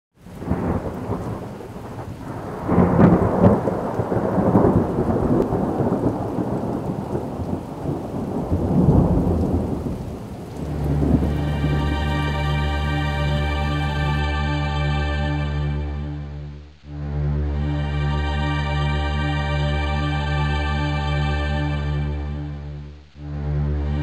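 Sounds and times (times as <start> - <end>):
steady rain: 0.1 - 24.0
rolling thunder: 0.2 - 14.2
ambient music of sustained tones: 10.5 - 24.0.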